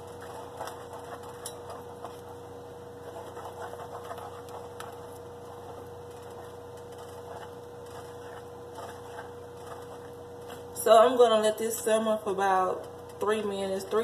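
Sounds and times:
steady hum: 0.0 - 14.0
plastic spoon scraping metal pot: 3.0 - 5.1, 5.7 - 10.7.

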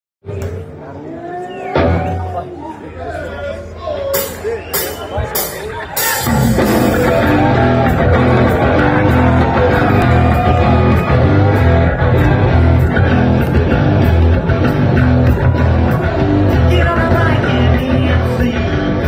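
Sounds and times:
live rock band playing: 4.1 - 19.0.

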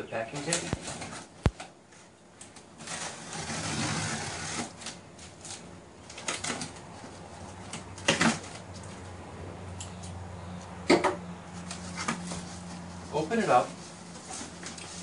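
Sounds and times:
blade ripping packing tape: 2.5 - 6.7.

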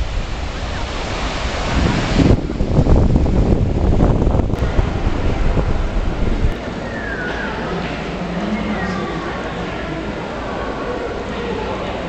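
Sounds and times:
wind buffeting microphone: 0.0 - 8.4
breaking surf: 0.0 - 12.0.

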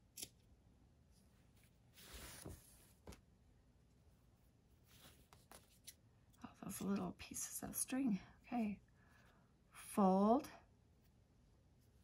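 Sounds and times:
fabric rustling: 1.4 - 3.2.

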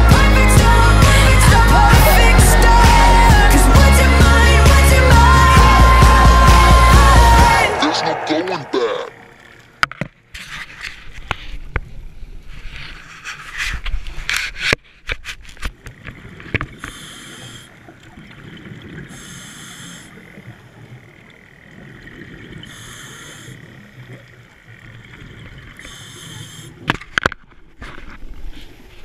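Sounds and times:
diver breathing hiss: 16.8 - 17.7, 19.1 - 20.2, 22.7 - 23.6, 25.8 - 26.8.

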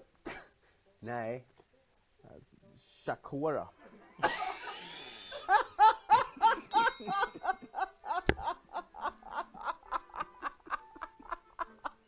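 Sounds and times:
man laughing hard: 4.2 - 12.0.

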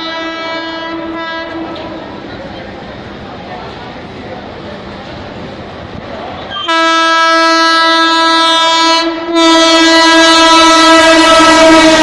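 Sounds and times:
locomotive horn blasts: 0.0 - 1.9, 6.5 - 12.0.

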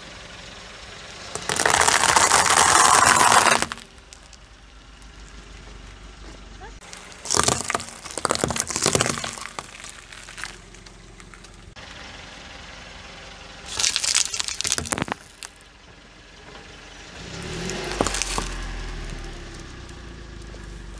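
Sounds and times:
car low rumble: 0.0 - 20.9
sharp crack: 1.3 - 4.4, 6.8 - 11.6, 13.7 - 15.7
tyre crushing cucumbers: 1.4 - 4.2, 6.8 - 11.6, 13.7 - 15.6, 17.6 - 19.2
plastic packet crackling: 1.4 - 4.3, 6.9 - 10.9, 13.7 - 15.6.

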